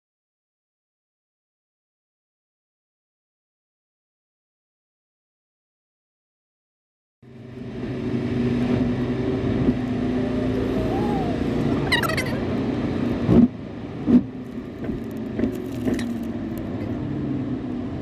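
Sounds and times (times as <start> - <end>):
car cabin road noise: 7.3 - 18.0.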